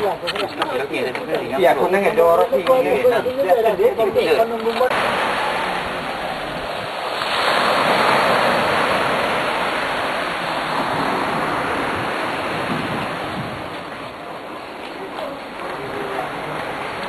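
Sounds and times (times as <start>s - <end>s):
wave washing in: 4.8s - 17.0s.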